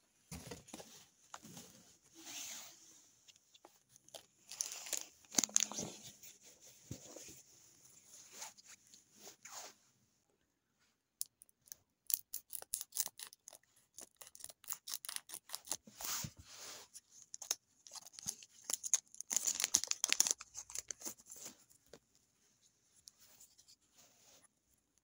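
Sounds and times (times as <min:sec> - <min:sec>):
foil wrapper crinkling: 0:04.2 - 0:05.8, 0:17.2 - 0:21.2.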